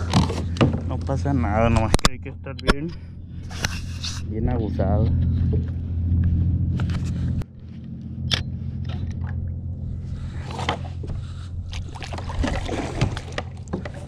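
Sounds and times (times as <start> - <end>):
knocks and scrapes on hull: 0.0 - 2.1, 3.4 - 7.8, 10.0 - 14.0
motorboat engine drone: 0.0 - 14.0
water splashing around a kayak: 10.3 - 14.0.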